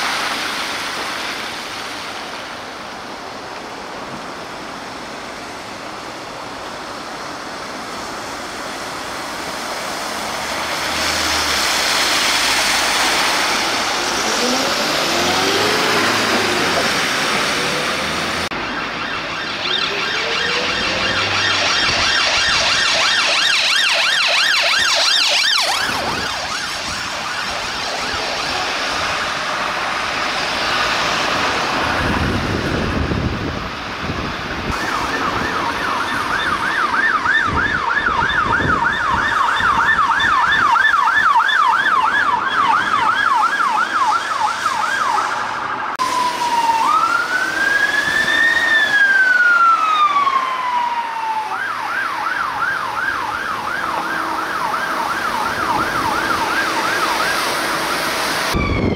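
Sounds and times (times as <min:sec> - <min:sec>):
vehicle rumble: 0:00.0 - 0:22.7
siren wail: 0:08.7 - 0:58.9
siren yelp: 0:10.7 - 0:31.2, 0:34.6 - 0:58.9.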